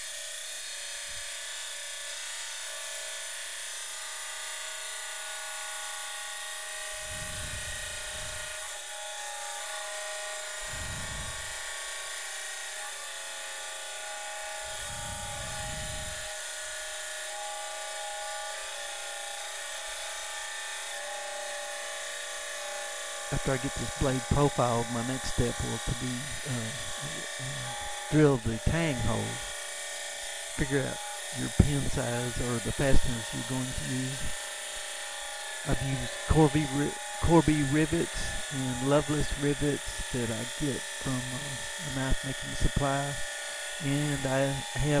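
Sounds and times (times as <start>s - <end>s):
grinding wheel whine on steel: 0.0s - 45.0s.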